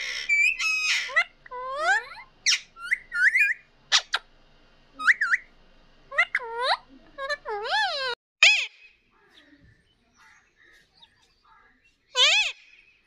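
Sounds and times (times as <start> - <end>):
parakeet whistles and squawks: 0.0 - 4.3, 5.0 - 5.5, 6.1 - 9.0, 12.1 - 12.8.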